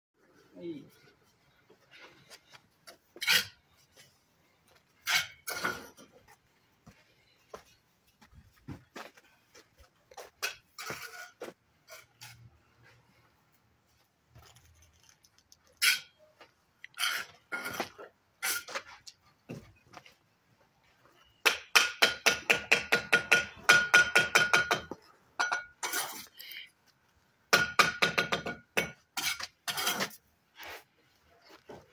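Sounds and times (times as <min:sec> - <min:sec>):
trowel clinking and scraping bricks: 0:02.9 - 0:04.1, 0:04.9 - 0:06.2, 0:10.4 - 0:12.5, 0:14.3 - 0:19.2, 0:21.3 - 0:26.6, 0:27.5 - 0:30.9.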